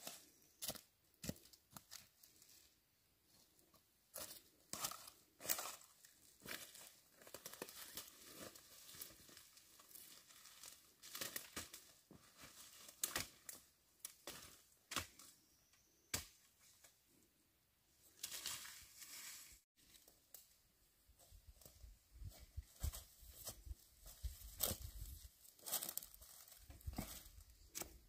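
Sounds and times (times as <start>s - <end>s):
footsteps through dry brush: 4.1s - 14.6s, 18.2s - 20.3s, 21.1s - 28.0s.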